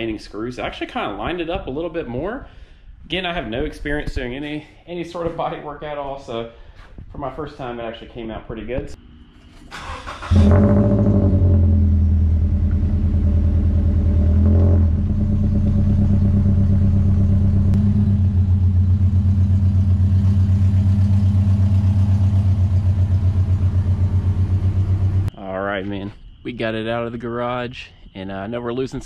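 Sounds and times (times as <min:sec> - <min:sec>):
car engine idling: 0:09.8 - 0:25.4.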